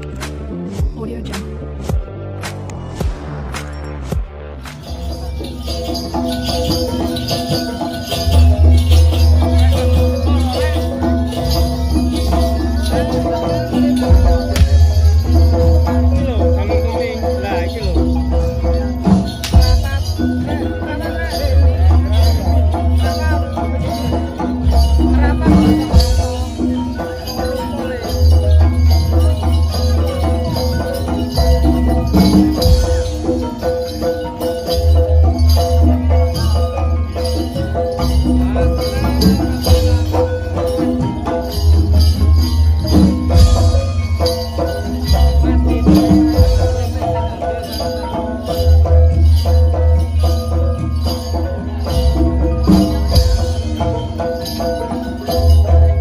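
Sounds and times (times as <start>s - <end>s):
deep bass: 0.0s - 26.9s
drum strokes: 0.0s - 56.0s
metallophones playing melody: 0.0s - 56.0s.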